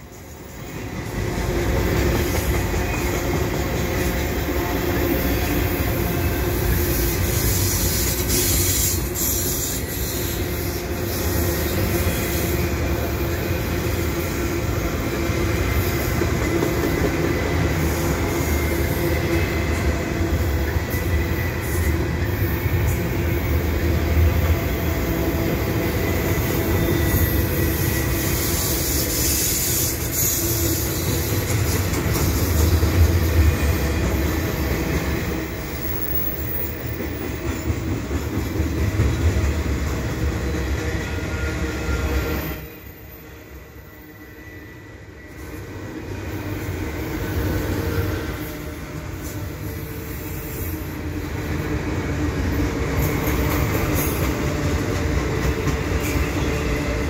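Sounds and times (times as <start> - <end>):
train wheels rumbling on rails: 0.0 - 57.0
faint high wheel squeal: 26.0 - 31.4, 41.0 - 51.0.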